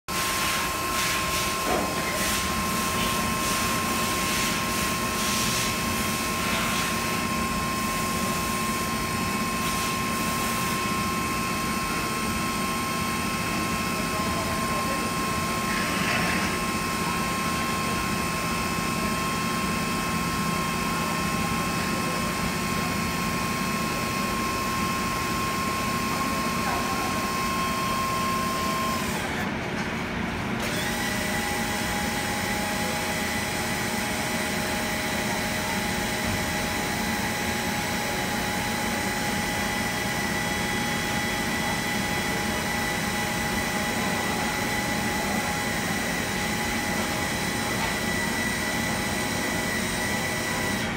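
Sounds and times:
hydraulic power pack whining: 0:24.0 - 0:29.5, 0:30.6 - 0:50.9.

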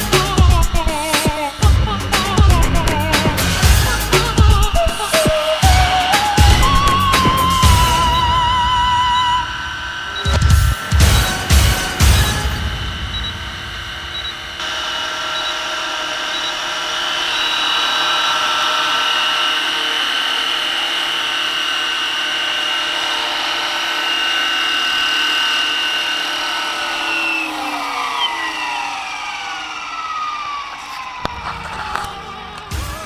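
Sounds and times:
model helicopter motor whine: 0:00.0 - 0:33.0.

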